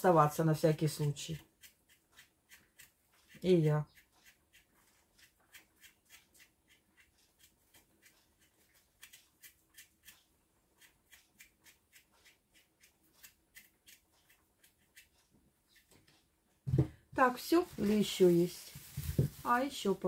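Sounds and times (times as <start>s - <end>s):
knife scraping potato skin: 0.8s - 16.0s.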